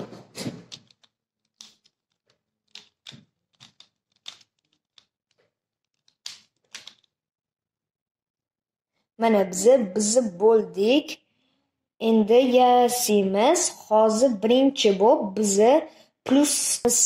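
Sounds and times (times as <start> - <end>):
plastic puzzle clicking: 0.6 - 7.2.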